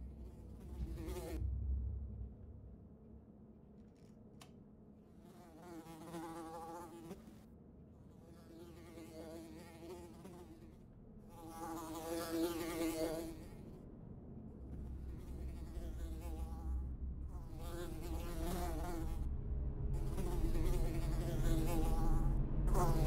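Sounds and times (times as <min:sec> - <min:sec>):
fly buzzing: 0:05.2 - 0:07.5, 0:08.2 - 0:13.6, 0:15.0 - 0:19.3, 0:20.0 - 0:23.0.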